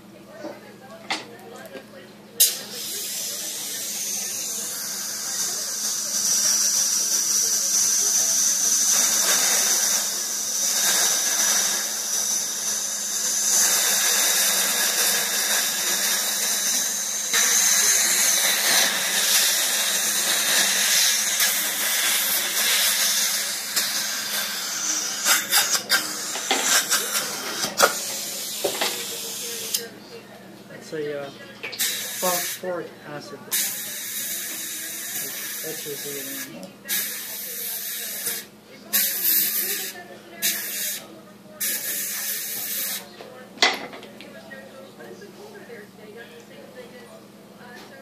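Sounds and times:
dental suction hissing: 2.4 - 29.9, 31.8 - 32.8, 33.5 - 43.1.

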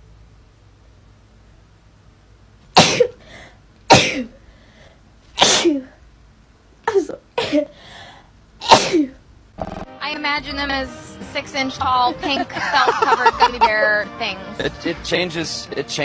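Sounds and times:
woman sneezing: 2.8 - 3.2, 3.9 - 4.4, 5.4 - 6.0, 6.9 - 7.8, 8.6 - 9.2.

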